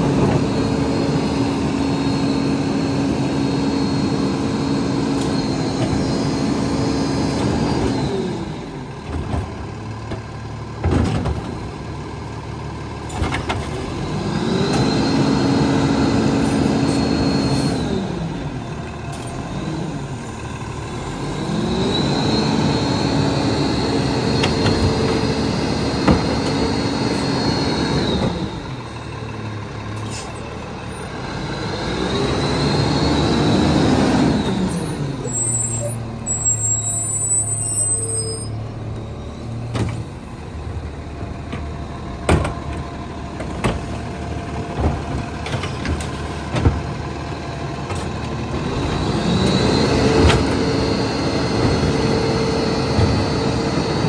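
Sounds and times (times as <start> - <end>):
hydraulic whine: 0.0 - 8.7, 21.1 - 29.0, 30.0 - 40.3
garbage truck engine revving: 0.0 - 54.0.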